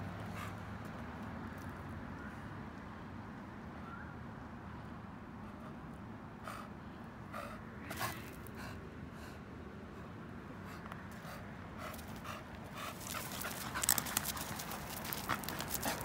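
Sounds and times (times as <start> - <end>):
dog panting: 10.6 - 16.0.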